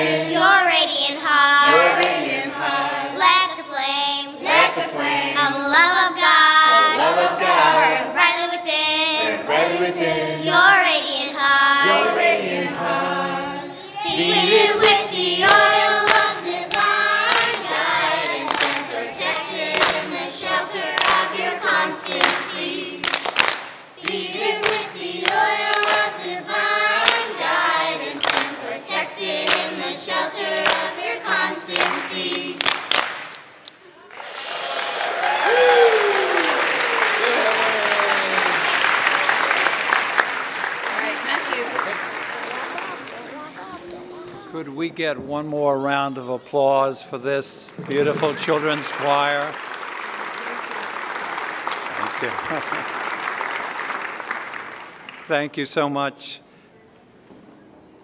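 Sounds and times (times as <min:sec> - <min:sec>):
children's choir singing: 0:00.0 - 0:23.4, 0:24.0 - 0:32.9
hand claps: 0:14.8 - 0:20.1, 0:20.9 - 0:21.3, 0:22.1 - 0:26.1, 0:27.0 - 0:27.3, 0:28.2 - 0:28.5, 0:30.5 - 0:30.9, 0:31.8 - 0:34.2, 0:47.7 - 0:55.4.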